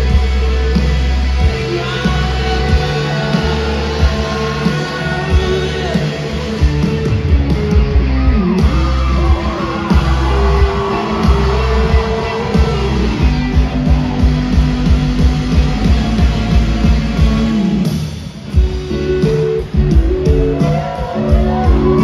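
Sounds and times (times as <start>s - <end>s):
live rock band playing: 0.0s - 22.0s.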